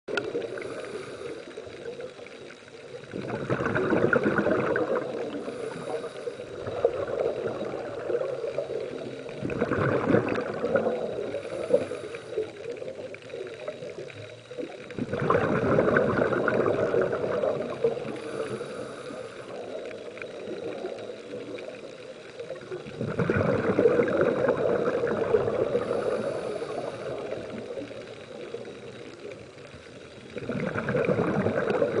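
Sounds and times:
exhaled bubbles gurgling: 0:00.1 - 0:32.0
regulator inhalations: 0:00.4 - 0:02.3, 0:05.2 - 0:06.7, 0:11.0 - 0:12.8, 0:17.9 - 0:22.1, 0:25.6 - 0:27.8.

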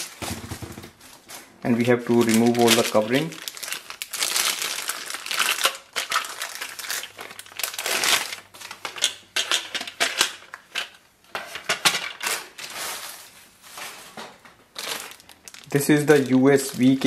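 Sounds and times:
plastic packaging crinkling: 0:00.0 - 0:11.0, 0:14.6 - 0:17.0.

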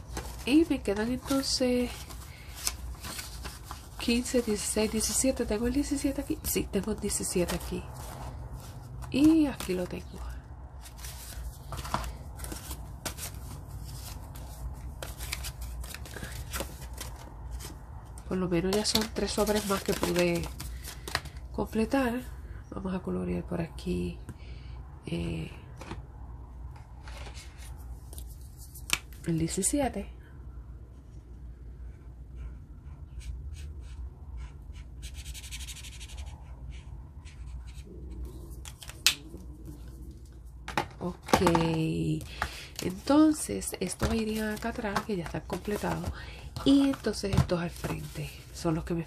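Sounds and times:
paper rustling: 0:00.0 - 0:09.9, 0:10.8 - 0:17.8, 0:18.7 - 0:21.4, 0:41.2 - 0:48.6
felt-tip marker scratching on paper: 0:32.4 - 0:37.8.

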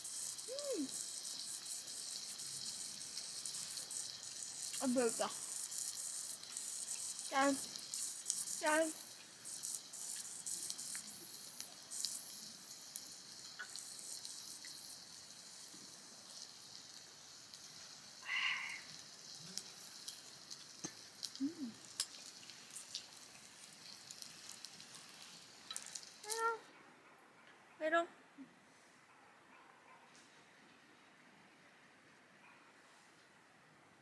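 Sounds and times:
beef sizzling on a grill: 0:00.0 - 0:26.7
small crackles: 0:00.0 - 0:26.7.

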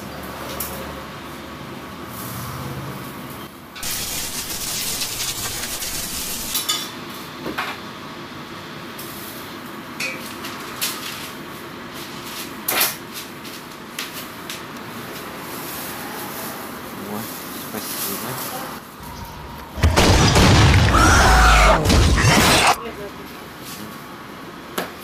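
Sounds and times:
hiss: 0:03.8 - 0:06.6.

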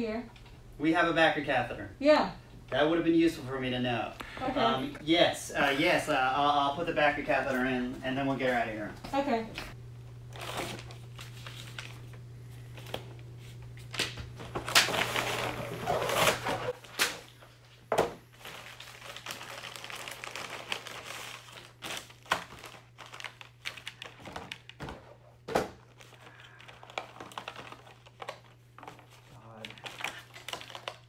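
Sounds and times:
steady low hum: 0:00.0 - 0:18.3
plastic and paper crinkling: 0:10.3 - 0:17.4, 0:18.3 - 0:31.0.

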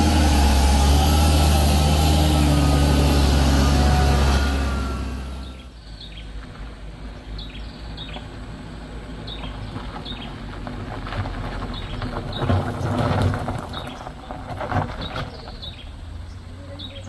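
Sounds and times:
car engine: 0:00.0 - 0:17.0
tyres crunching on gravel: 0:00.0 - 0:17.0
bird chirping: 0:05.3 - 0:06.4, 0:07.1 - 0:08.3, 0:09.2 - 0:10.4, 0:13.7 - 0:17.0.

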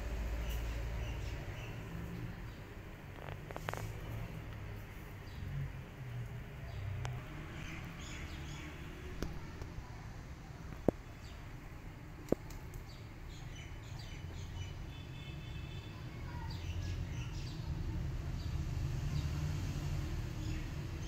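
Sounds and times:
small birds chirping: 0:00.0 - 0:21.0
sharp clicks: 0:12.2 - 0:12.9.

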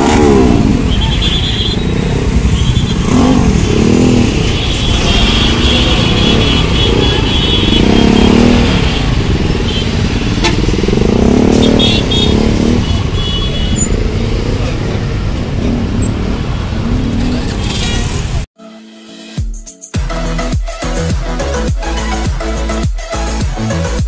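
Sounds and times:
motorcycle engines revving: 0:00.0 - 0:18.5.

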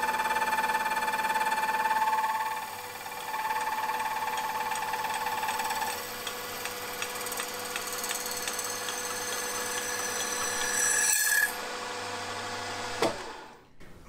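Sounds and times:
high squeal of saw cutting metal: 0:07.9 - 0:11.6.

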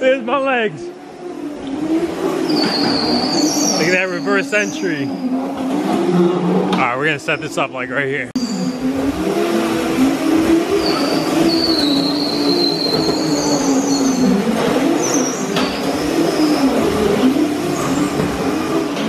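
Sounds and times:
wheels squealing: 0:00.0 - 0:19.0
electric motor whine: 0:08.4 - 0:19.0.

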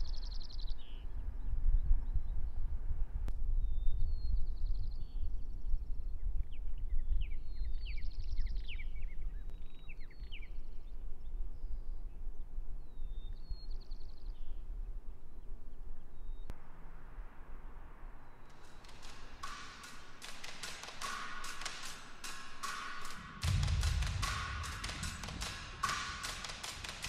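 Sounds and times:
steady low rumble: 0:16.5 - 0:27.0.

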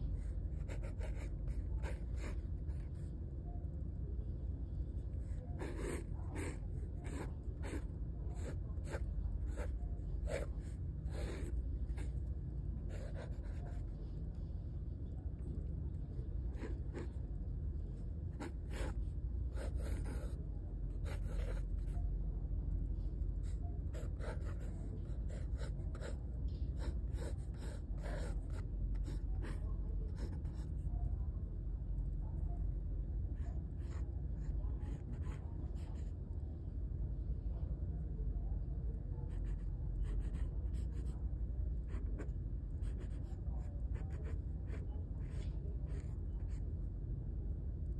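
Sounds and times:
steady low hum: 0:00.0 - 0:47.9
pencil sketching on paper: 0:00.1 - 0:03.1, 0:05.0 - 0:14.1, 0:18.3 - 0:22.0, 0:23.4 - 0:30.8.

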